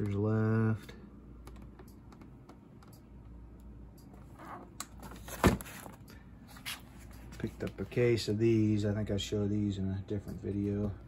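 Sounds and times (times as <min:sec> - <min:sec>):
cardboard boxes tapping and scuffing: 0:05.0 - 0:06.0.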